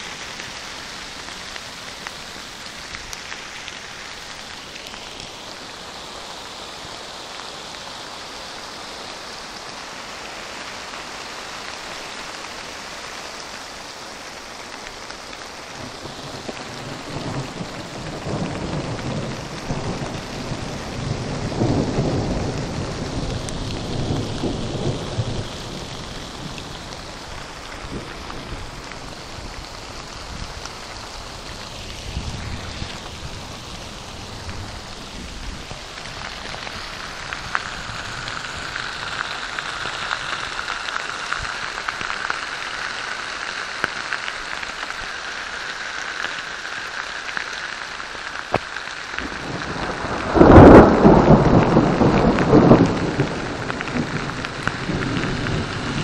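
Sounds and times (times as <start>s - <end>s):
steady rain falling: 0.0s - 56.0s
rolling thunder rumble: 15.9s - 30.6s, 49.2s - 56.0s.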